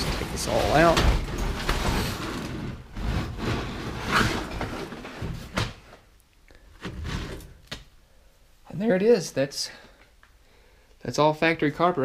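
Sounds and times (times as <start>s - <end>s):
carpet rustling and scraping: 0.0s - 7.8s.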